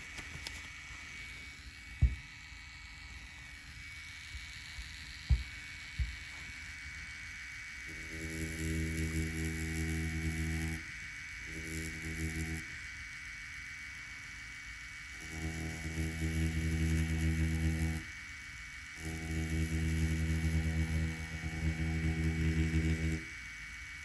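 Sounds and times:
tattoo machine buzzing: 0:00.0 - 0:24.0
soft thumps: 0:02.0 - 0:02.3, 0:05.2 - 0:06.2.

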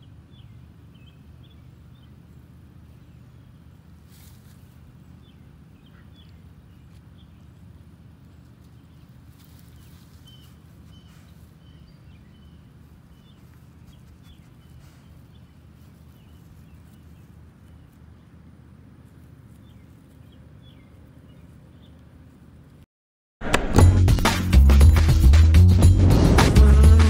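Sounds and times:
soft rustles: 0:04.0 - 0:04.8, 0:08.2 - 0:11.6, 0:12.8 - 0:18.1
steady low rumble: 0:23.8 - 0:27.0.

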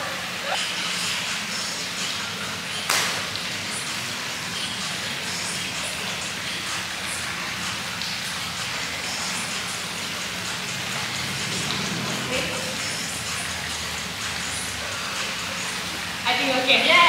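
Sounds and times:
rain hissing: 0:00.0 - 0:17.0
sharp knock: 0:02.9 - 0:03.2.

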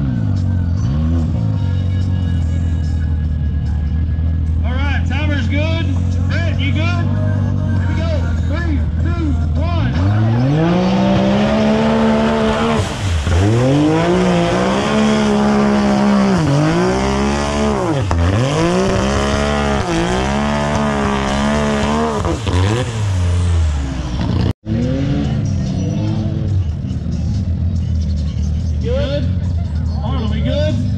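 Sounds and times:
engine revving hard: 0:09.8 - 0:26.5.

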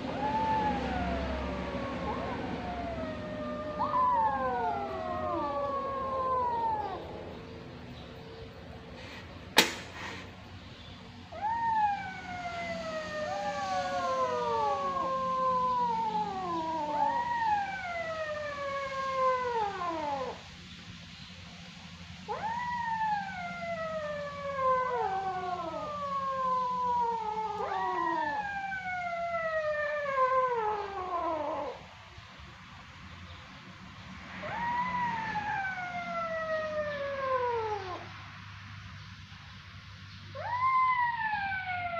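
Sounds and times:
sharp click: 0:09.6 - 0:10.1.

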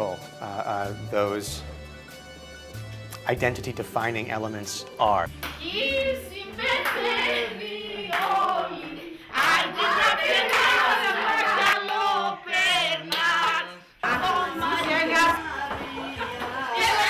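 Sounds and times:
group of people singing: 0:05.6 - 0:17.0.

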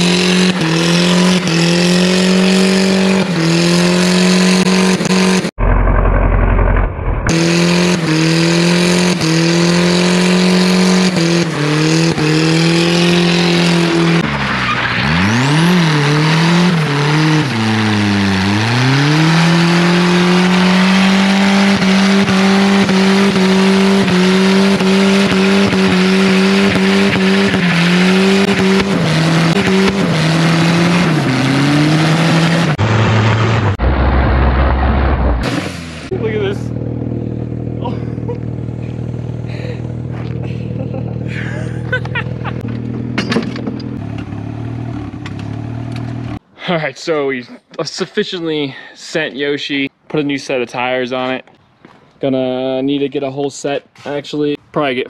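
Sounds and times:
engine revving high: 0:00.0 - 0:05.5, 0:07.2 - 0:41.4
tyres squealing: 0:11.4 - 0:23.1.

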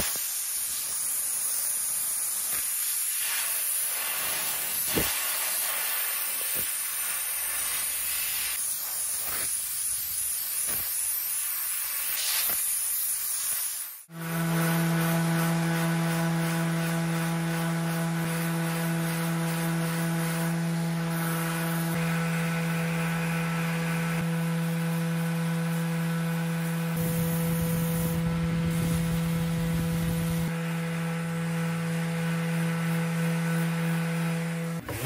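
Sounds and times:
spray gun hissing: 0:00.0 - 0:30.6
orbital sander motor hum: 0:14.1 - 0:35.0.

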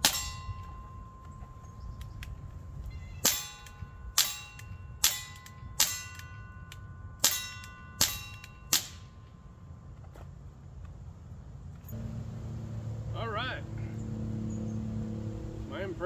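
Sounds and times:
steel target ringing: 0:00.0 - 0:01.7, 0:02.8 - 0:09.4.

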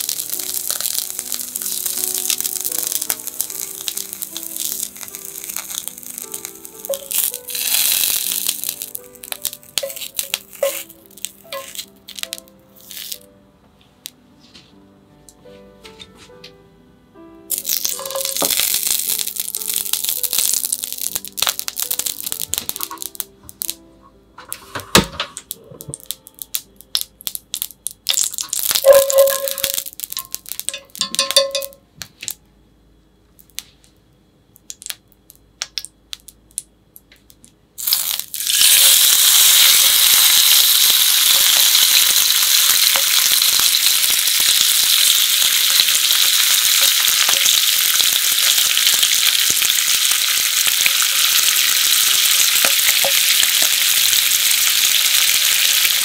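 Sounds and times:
meat sizzling in a pan: 0:00.0 - 0:13.2, 0:17.5 - 0:23.7, 0:25.9 - 0:31.6, 0:37.8 - 0:56.0
fat crackling and sizzling: 0:00.0 - 0:13.3, 0:17.5 - 0:23.8, 0:24.4 - 0:32.4, 0:37.8 - 0:56.0.

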